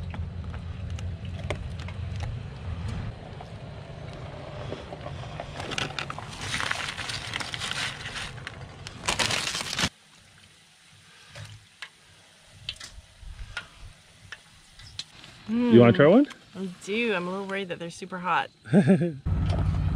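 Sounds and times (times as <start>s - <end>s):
loud rustle: 5.1s - 9.9s
frying hiss in hot oil: 9.3s - 18.2s
wind rumbling on microphone: 12.9s - 14.0s.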